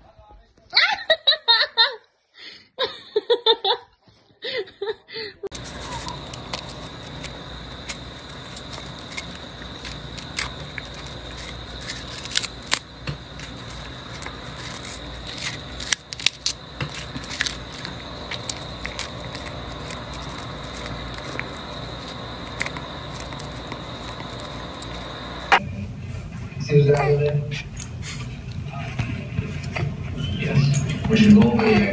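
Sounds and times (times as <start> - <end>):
cat crunching a treat: 5.5 - 25.4
faint high whine: 5.5 - 31.9.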